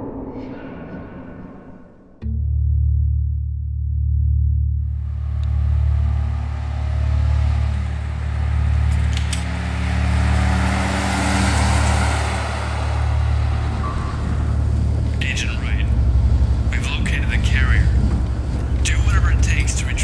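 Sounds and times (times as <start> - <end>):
low pulsing drone: 0.0 - 20.0
car driving past: 4.9 - 20.0.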